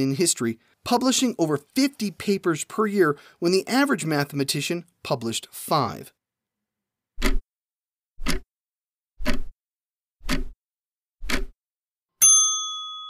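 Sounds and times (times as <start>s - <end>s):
clock ticking: 7.2s - 7.4s, 8.2s - 8.4s, 9.2s - 9.5s, 10.2s - 10.6s, 11.2s - 11.6s
bell ding: 12.2s - 13.0s.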